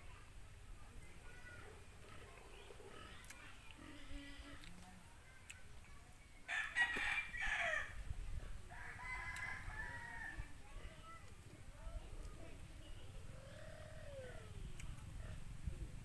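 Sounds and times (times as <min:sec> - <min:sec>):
rooster crowing: 0:06.5 - 0:08.0, 0:08.7 - 0:10.5.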